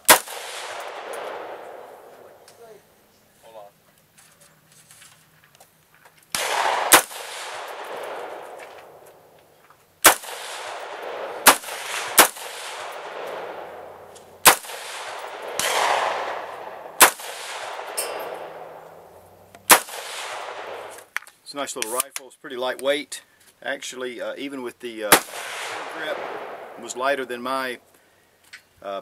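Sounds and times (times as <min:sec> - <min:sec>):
rifle shots echoing: 0:00.0 - 0:02.8, 0:06.3 - 0:09.4, 0:10.0 - 0:21.1, 0:25.1 - 0:27.9.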